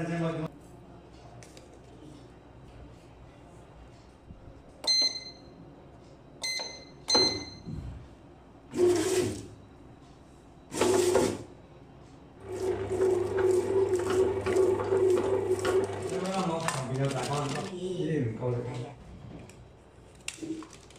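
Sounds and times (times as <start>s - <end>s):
bread maker kneading motor: 12.4s - 17.7s.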